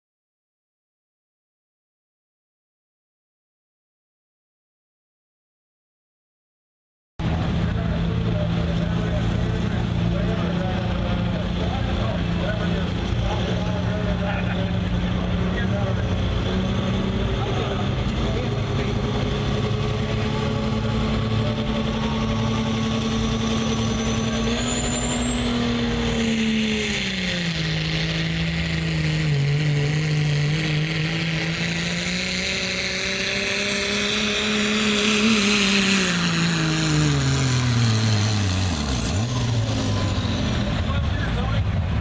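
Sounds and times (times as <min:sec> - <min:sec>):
diesel truck engine: 0:07.2 - 0:42.0
turbo whistle: 0:23.5 - 0:26.3.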